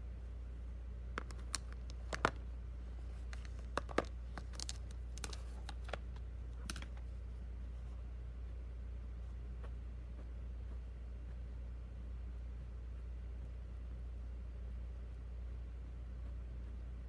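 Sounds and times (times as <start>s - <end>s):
steady low hum: 0.0s - 17.0s
plastic pens clicking: 1.2s - 2.4s, 3.3s - 6.0s, 6.6s - 7.0s.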